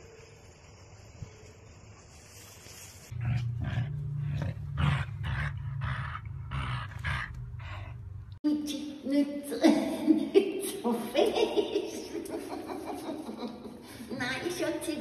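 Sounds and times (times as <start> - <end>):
dog play-growling: 3.1 - 8.1.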